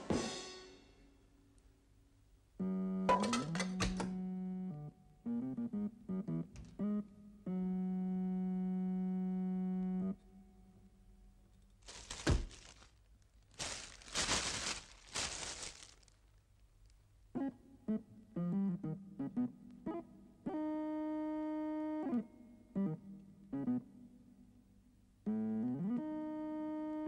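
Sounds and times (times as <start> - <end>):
plucked music notes: 3.1 - 4.2
plastic wrapping crumpling: 11.8 - 17.0
electric keyboard music: 17.4 - 24.2.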